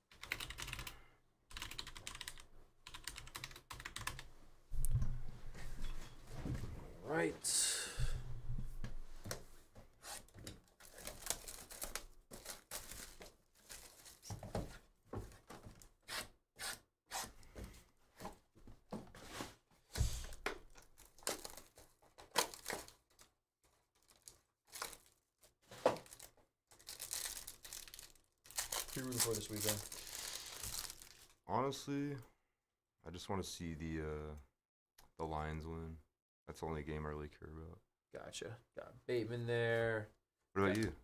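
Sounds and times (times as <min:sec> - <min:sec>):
plastic and foil wrapping crinkling: 0:10.7 - 0:14.6, 0:20.8 - 0:31.4.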